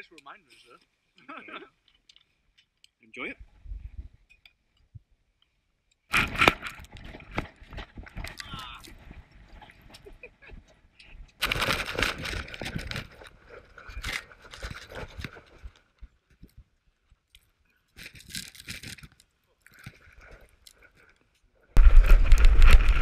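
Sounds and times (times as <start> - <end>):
rustling and crunching on snow: 21.8 - 23.0.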